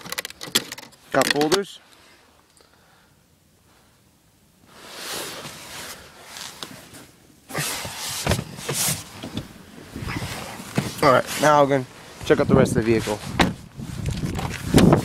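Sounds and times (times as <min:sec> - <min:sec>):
rustling and handling noise: 0:04.6 - 0:15.0.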